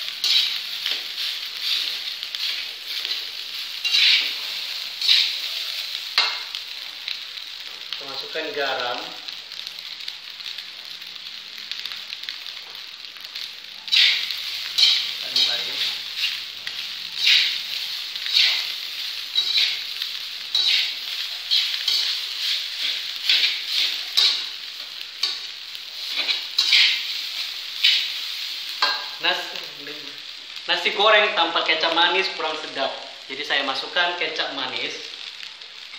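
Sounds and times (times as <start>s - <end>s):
rice sizzling in a frying pan: 0.0s - 35.9s
metal spatula scraping a pan: 0.1s - 6.5s, 13.9s - 16.4s, 18.2s - 19.9s, 20.5s - 24.6s, 25.2s - 28.1s.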